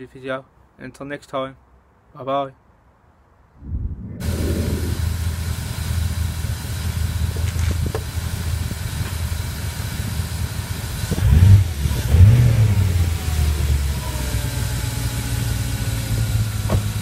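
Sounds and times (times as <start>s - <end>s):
car engine idling and revving: 4.2s - 17.0s.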